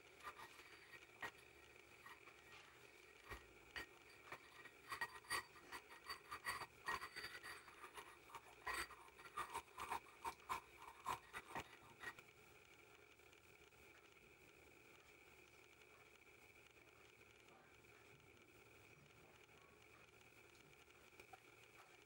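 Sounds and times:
pestle scraping in mortar: 3.3s - 11.9s.

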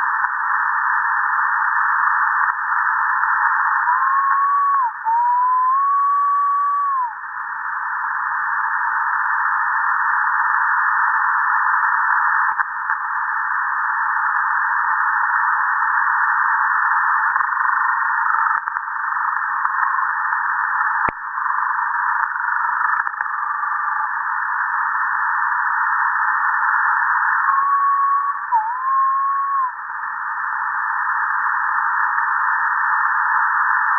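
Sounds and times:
radio static hiss: 0.0s - 33.9s
thin whistling tone: 3.9s - 7.1s, 27.4s - 29.8s.

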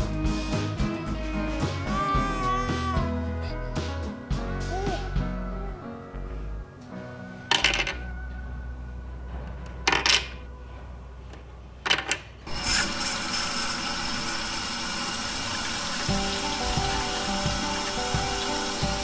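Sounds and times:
light background music: 0.0s - 12.2s, 16.1s - 19.0s
toy faucet water rushing: 12.5s - 19.0s.

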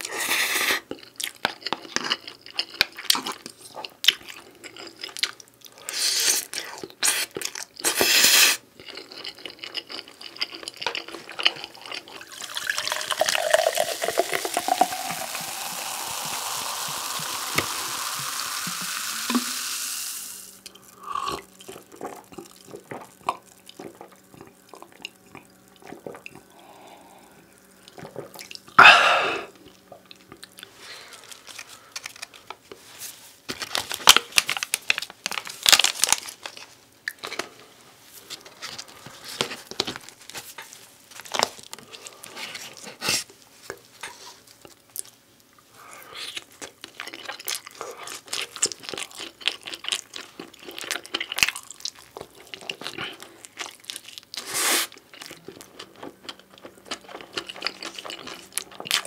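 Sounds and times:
eating noises: 0.0s - 19.1s, 20.6s - 32.6s, 45.7s - 59.0s
drink poured into a glass: 12.2s - 20.5s.

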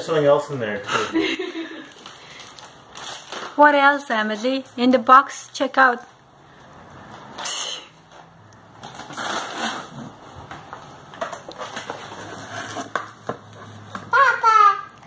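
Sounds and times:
bubble wrap crinkling: 1.8s - 4.0s.

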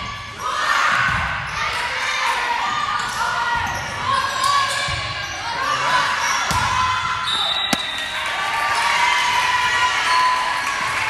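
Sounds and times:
shoes squeaking on court floor: 7.6s - 8.2s
volleyball being struck: 7.7s - 8.4s.

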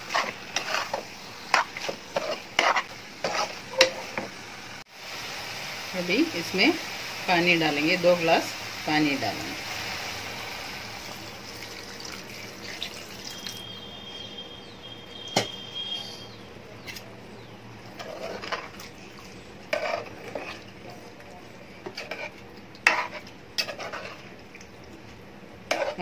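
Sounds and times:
spoon stirring curry: 0.0s - 3.9s, 16.8s - 26.0s.

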